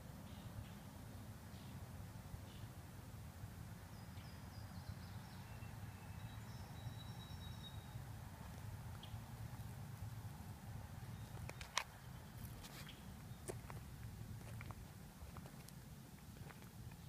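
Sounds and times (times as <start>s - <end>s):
low outdoor rumble: 0.0s - 17.0s
faint high bird chirps: 3.9s - 8.0s.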